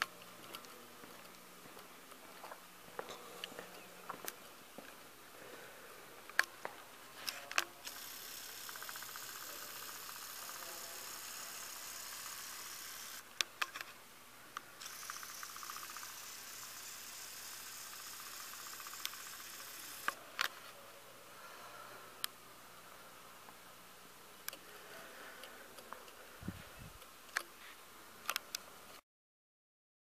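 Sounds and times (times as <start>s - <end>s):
faint room tone hiss: 0.0s - 29.0s.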